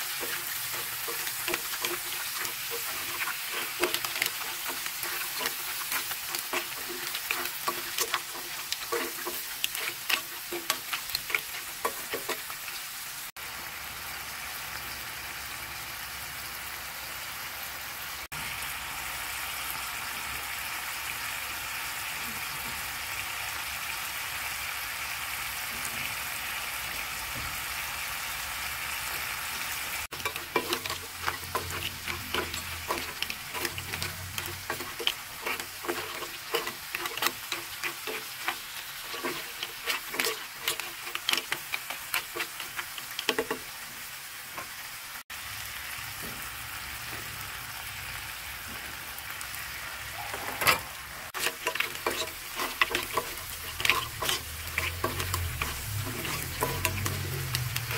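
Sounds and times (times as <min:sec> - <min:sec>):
butter sizzling: 0:00.0 - 0:57.9
shells clattering in a pan: 0:30.1 - 0:43.7, 0:50.4 - 0:57.9.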